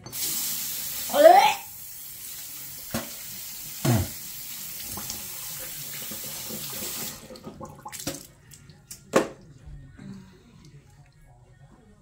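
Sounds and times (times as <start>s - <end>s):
tap water running into sink: 0.0s - 8.3s.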